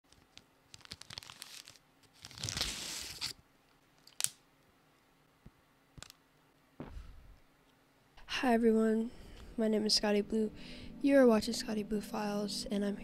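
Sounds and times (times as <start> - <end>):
plastic packet crinkling: 0.1 - 3.3.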